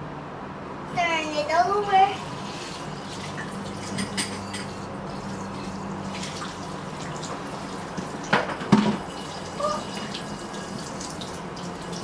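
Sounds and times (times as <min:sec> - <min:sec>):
tap water running into sink: 0:05.1 - 0:12.0
dishware knocking against sink: 0:08.3 - 0:09.1.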